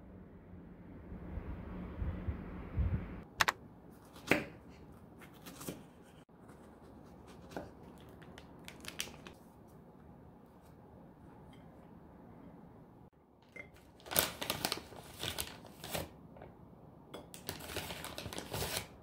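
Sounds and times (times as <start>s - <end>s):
plastic packaging crinkling: 7.9s - 9.4s, 13.8s - 16.1s, 17.4s - 19.0s.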